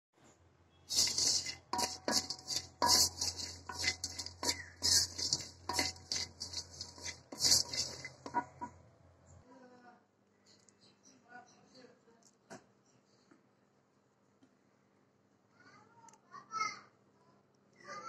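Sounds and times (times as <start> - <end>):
nuts rattling against metal: 0.9 - 8.7
wooden spatula scraping a pan: 0.9 - 8.8.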